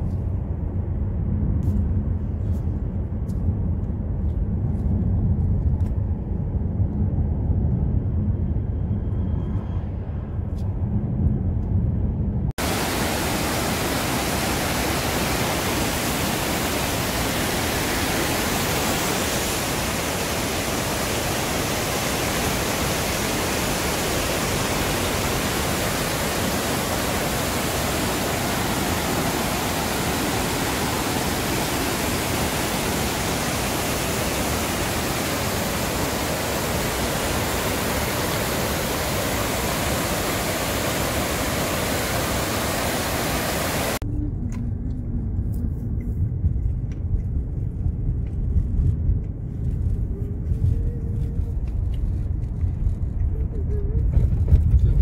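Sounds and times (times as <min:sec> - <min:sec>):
low uneven rumble: 0:11.2 - 0:55.0
waterfall rushing: 0:12.6 - 0:44.0.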